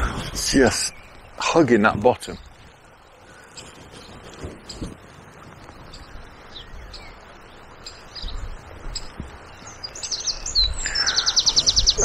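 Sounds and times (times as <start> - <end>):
flowing river water: 0.0 - 12.0
small birds chirping: 0.0 - 12.0
low bumps: 2.0 - 10.8.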